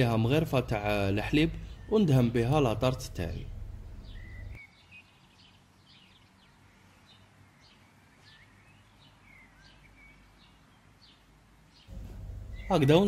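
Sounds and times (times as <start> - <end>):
birds chirping: 0.0 - 13.0.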